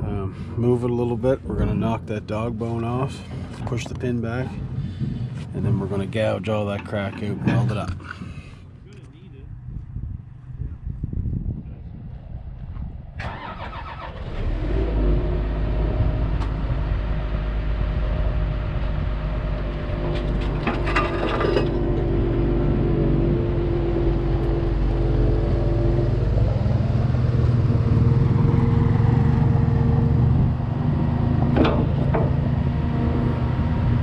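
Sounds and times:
diesel engine starting and running: 13.2s - 34.0s.

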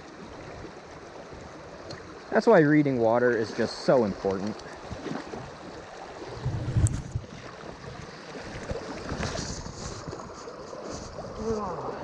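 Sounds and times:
stream rushing over stones: 0.0s - 12.0s
dull low thump: 6.3s - 7.3s.

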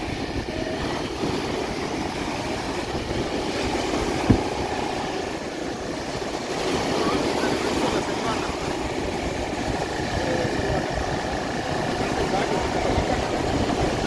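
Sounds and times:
surf breaking: 0.0s - 14.0s
wind buffeting microphone: 0.0s - 14.0s.

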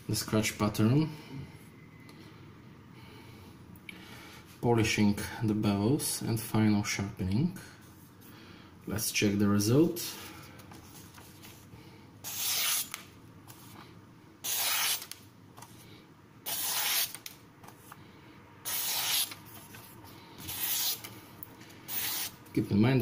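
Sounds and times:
knife slicing paper: 12.2s - 13.0s, 14.4s - 15.2s, 16.5s - 17.3s, 18.6s - 19.8s, 20.4s - 21.1s, 21.9s - 22.4s.

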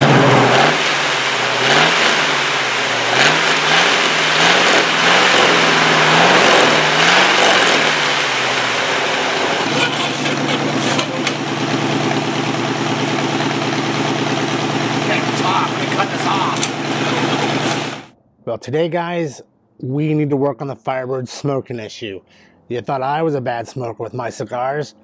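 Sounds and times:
car engine idling: 0.0s - 18.1s
car engine revving in blips: 0.0s - 18.1s.

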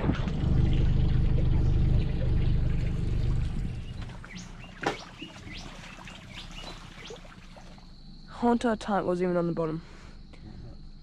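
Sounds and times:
boat motor droning: 0.0s - 8.5s
birds chirping: 1.2s - 8.9s.

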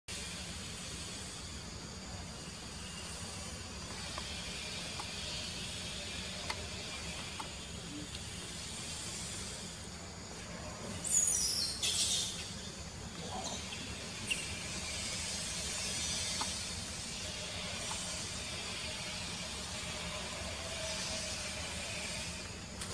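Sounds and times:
outdoor background hiss: 0.1s - 22.9s
faint clicks: 6.4s - 6.6s.

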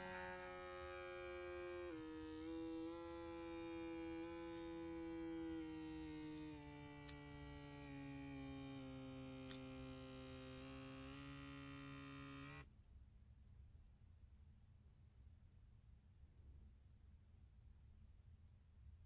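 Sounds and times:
electric pump buzzing hum: 0.0s - 12.7s
faint ticks: 1.4s - 12.6s.

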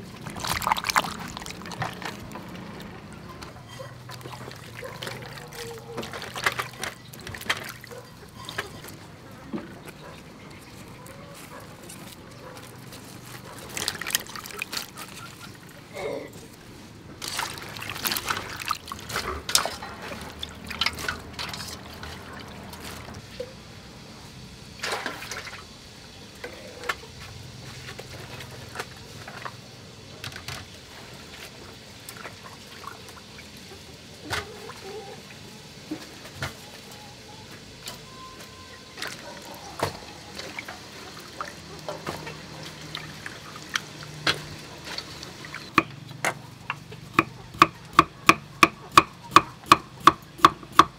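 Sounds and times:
water splashing in metal basin: 0.0s - 2.9s, 3.7s - 8.9s, 13.3s - 15.5s, 17.2s - 23.2s, 24.8s - 25.6s, 39.0s - 45.8s.

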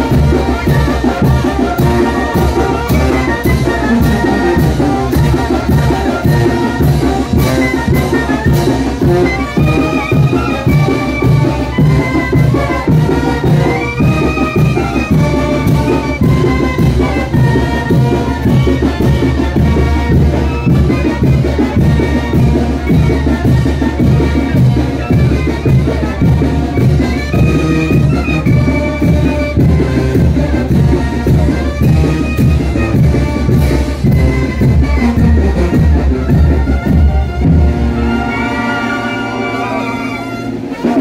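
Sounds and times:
brass band music: 0.0s - 41.0s.

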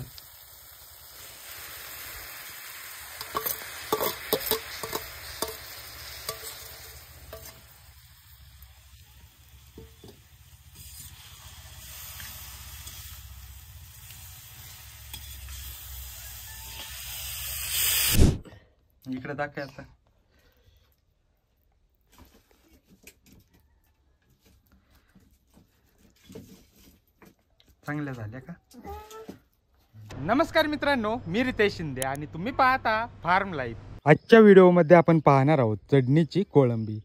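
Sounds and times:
prawns sizzling in a pan: 0.0s - 18.2s
spoon clicking against pan: 3.2s - 7.6s.

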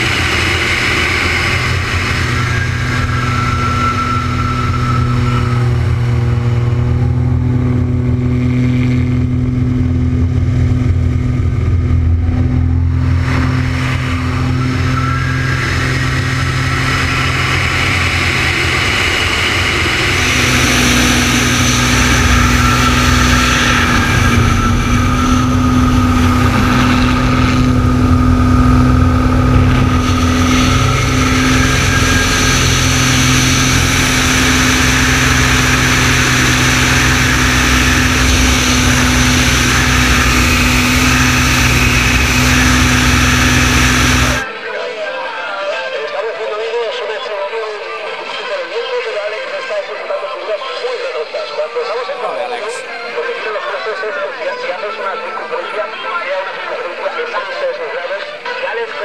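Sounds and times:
plane engine and propeller: 0.0s - 44.5s, 50.8s - 53.6s
rush of air: 10.1s - 44.5s.

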